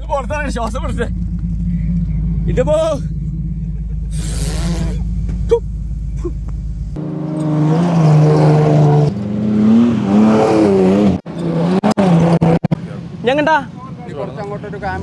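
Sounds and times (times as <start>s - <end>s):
car engine revving hard: 0.8s - 12.8s.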